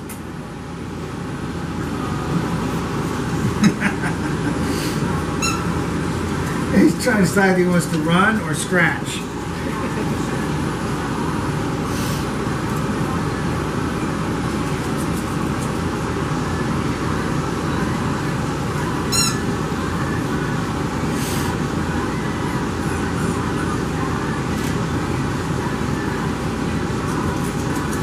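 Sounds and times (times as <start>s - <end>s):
short high squeak: 5.4s - 5.8s, 19.1s - 19.5s.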